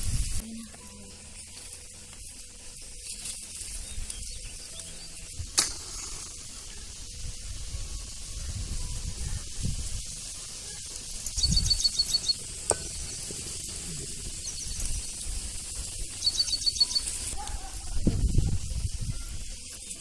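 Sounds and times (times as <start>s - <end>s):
fire crackling: 0.0s - 20.0s
bird calling high notes: 10.6s - 13.0s, 16.1s - 17.4s.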